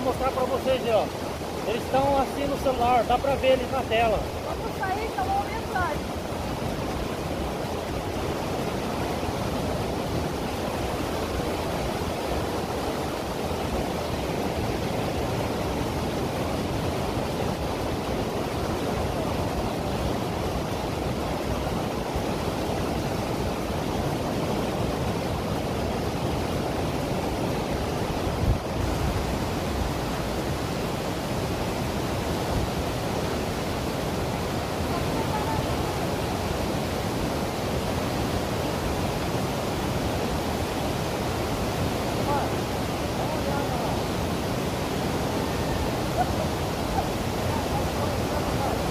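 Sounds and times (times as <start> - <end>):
waterfall rushing: 0.0 - 48.9.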